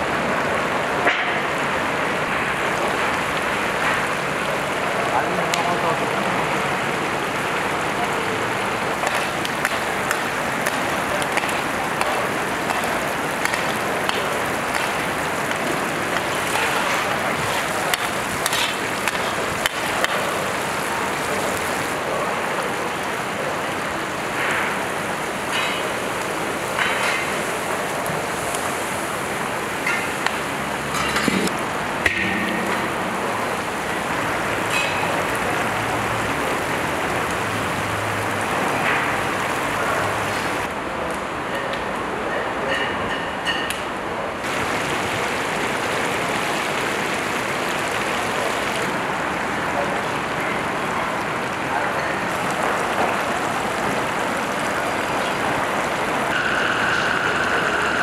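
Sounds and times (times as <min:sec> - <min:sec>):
food frying sizzle: 0:06.8 - 0:39.4, 0:44.4 - 0:49.1.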